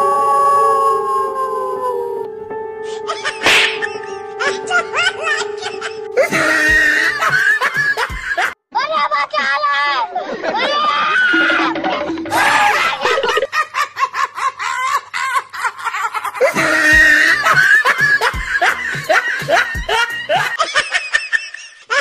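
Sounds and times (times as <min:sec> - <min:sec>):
music: 0:00.0 - 0:08.5, 0:16.6 - 0:20.6
people laughing: 0:03.1 - 0:08.6, 0:10.0 - 0:22.0.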